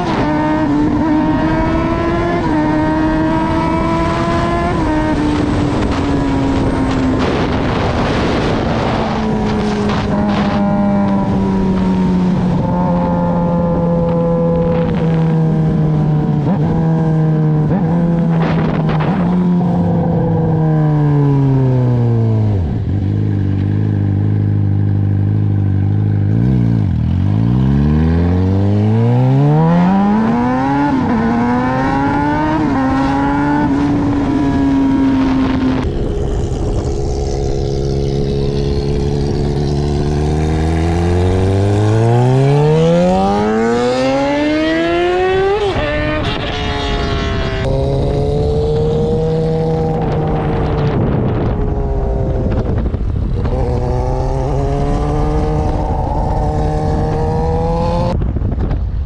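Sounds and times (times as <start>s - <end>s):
motorcycle engine running: 0.0s - 20.6s, 22.4s - 44.4s.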